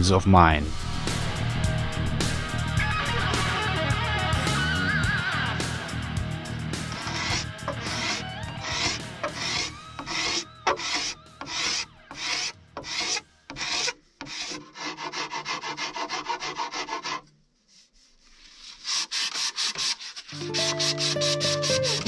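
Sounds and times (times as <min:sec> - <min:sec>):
sanding wood by hand: 0:06.8 - 0:22.0.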